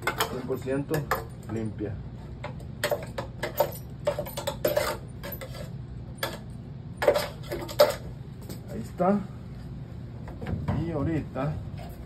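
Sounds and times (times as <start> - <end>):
metal parts clinking and knocking: 0.0 - 1.6, 2.4 - 8.6.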